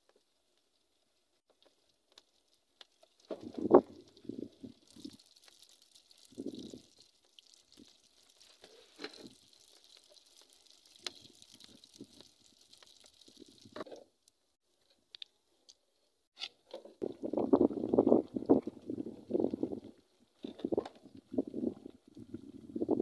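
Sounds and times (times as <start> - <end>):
dough sizzling in hot oil: 0.7 - 13.9.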